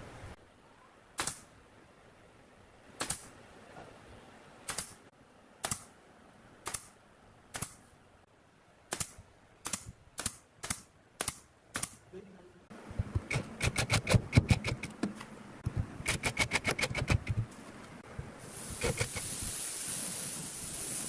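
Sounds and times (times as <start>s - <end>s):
nail gun firing: 4.7s - 5.0s, 8.9s - 12.0s, 13.2s - 14.9s, 16.0s - 17.4s.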